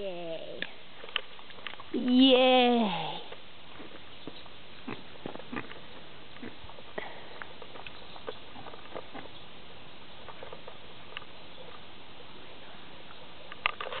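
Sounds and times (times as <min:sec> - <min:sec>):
pig chewing and crunching: 0:03.7 - 0:09.4, 0:10.2 - 0:11.8.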